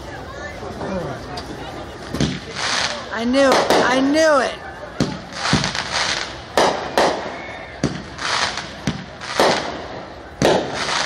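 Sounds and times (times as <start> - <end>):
fireworks hiss: 1.5 - 11.0
fireworks bursting with bangs: 1.8 - 11.0.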